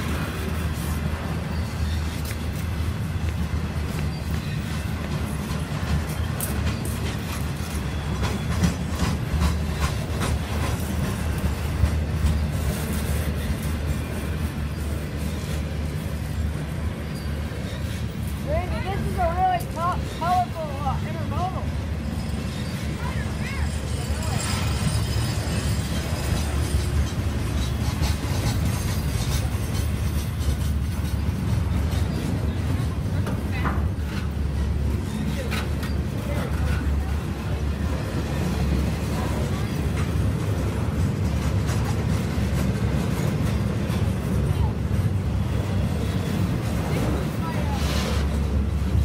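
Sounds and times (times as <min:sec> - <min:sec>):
rumble of wheels on rail: 0:00.0 - 0:49.0
wheels clacking over track: 0:00.0 - 0:49.0.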